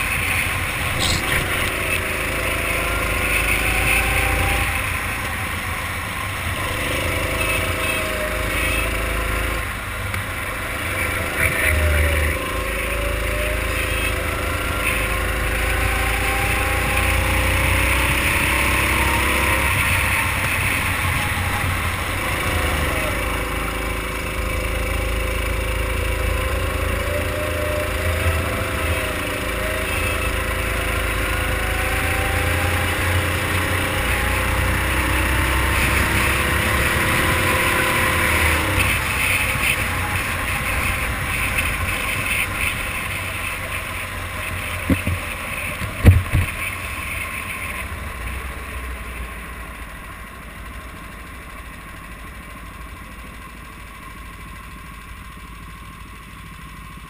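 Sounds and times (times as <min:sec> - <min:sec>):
kart engine running: 0:00.0 - 0:57.0
sharp knocks: 0:45.8 - 0:46.5.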